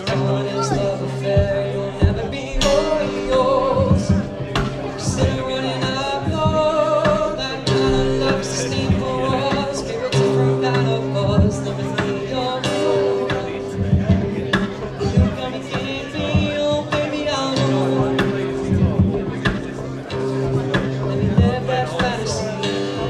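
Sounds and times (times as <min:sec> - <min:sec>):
person singing: 0:00.0 - 0:23.0
drum hits: 0:00.8 - 0:10.0, 0:13.3 - 0:19.8.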